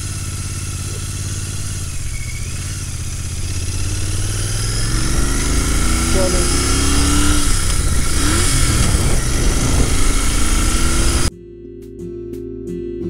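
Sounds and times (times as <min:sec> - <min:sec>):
motorcycle engine accelerating: 0:00.0 - 0:11.3.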